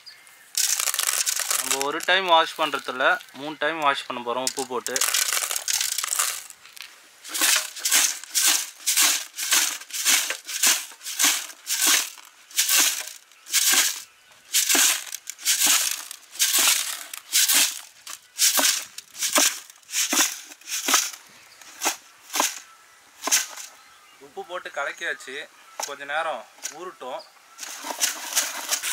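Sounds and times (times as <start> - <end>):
fish and salt swishing in bucket: 4.7 - 6.6, 7.2 - 21.2.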